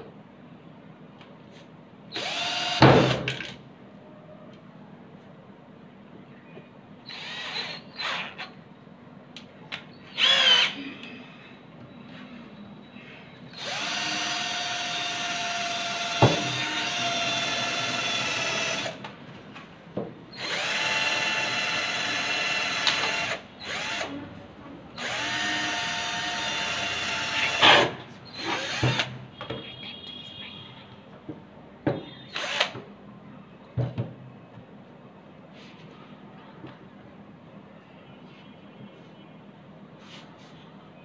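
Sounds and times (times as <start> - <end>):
cordless drill running: 2.2 - 3.1, 7.1 - 8.3, 10.2 - 10.8, 13.6 - 19.0, 20.4 - 24.1, 25.0 - 27.8, 28.4 - 29.1, 32.3 - 32.7.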